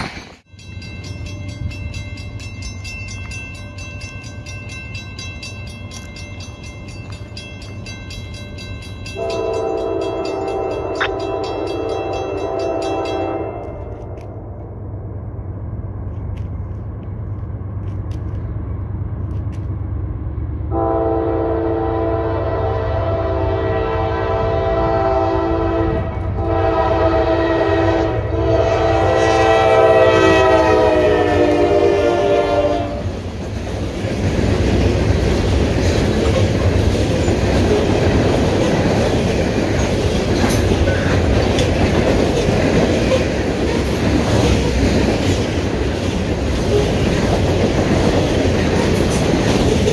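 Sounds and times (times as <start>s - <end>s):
low rumble of approaching train: 0.0s - 49.9s
locomotive air horn blasts: 9.2s - 14.2s, 20.7s - 33.1s
wheels clattering on rails: 32.9s - 49.9s.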